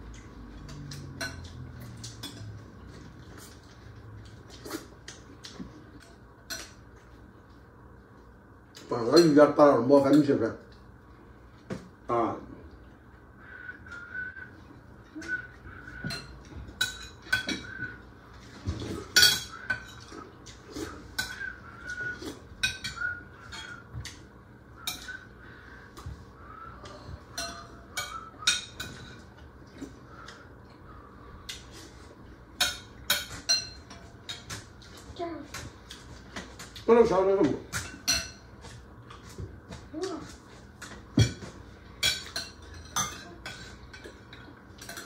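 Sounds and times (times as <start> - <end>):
cutlery clinking on plates: 0.2 - 2.6, 15.3 - 17.9, 18.5 - 24.2, 24.8 - 25.3, 27.3 - 29.4, 32.6 - 35.0, 37.6 - 39.8, 40.8 - 45.0.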